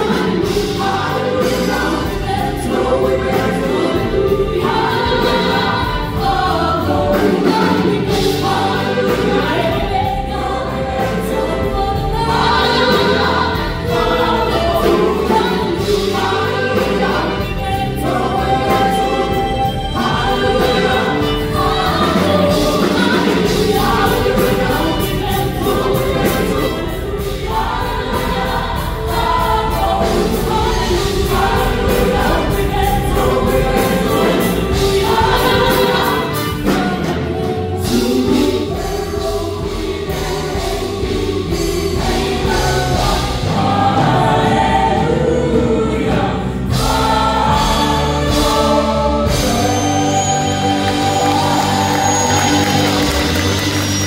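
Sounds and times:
amplified instrumental accompaniment: 0.0 - 54.0
group singing in harmony: 0.0 - 54.0.

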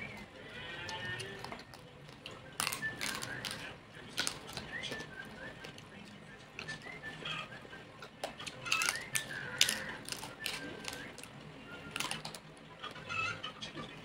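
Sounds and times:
crispy skin crunching while chewing: 0.0 - 13.1.

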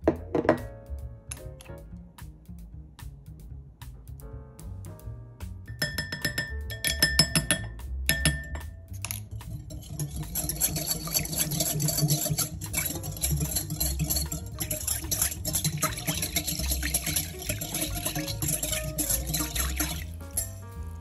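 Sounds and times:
clinks on glass bowl: 5.7 - 9.2
wire whisk beating in glass bowl: 5.7 - 20.6.

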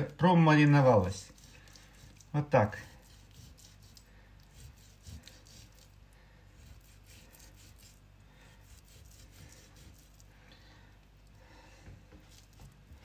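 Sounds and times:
knife scraping through meat: 1.2 - 10.2, 12.2 - 12.7.

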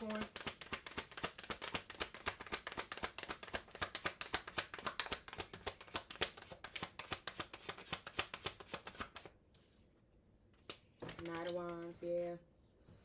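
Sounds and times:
cards being shuffled: 0.0 - 9.8, 10.8 - 11.9.

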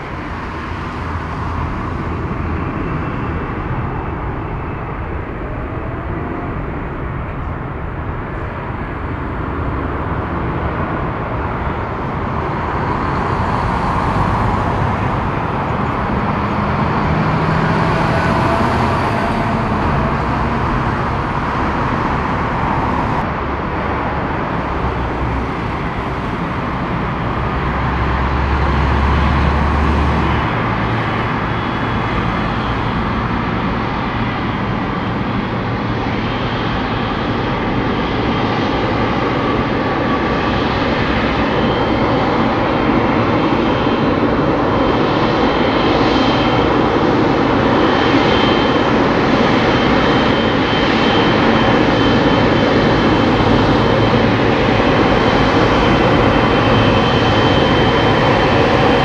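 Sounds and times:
jet engines rushing hum: 0.0 - 59.0.

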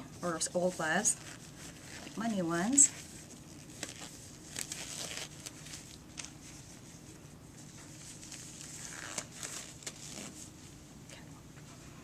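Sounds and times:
gloves rustling and snapping: 1.2 - 6.6, 7.8 - 10.4.

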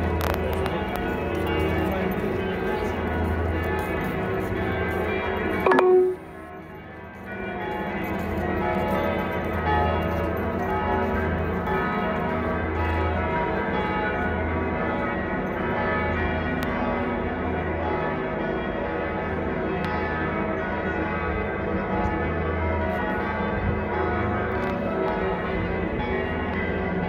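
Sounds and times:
church bells ringing: 0.0 - 27.0
deep low bell tone: 5.6 - 6.4.

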